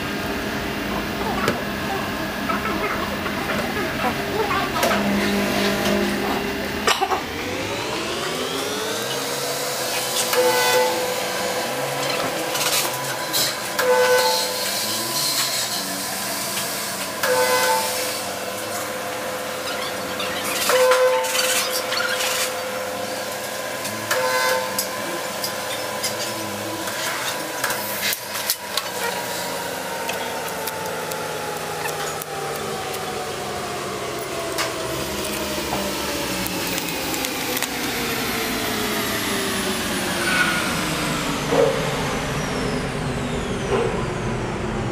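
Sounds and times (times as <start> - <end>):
heat press machine running: 0.0 - 44.9.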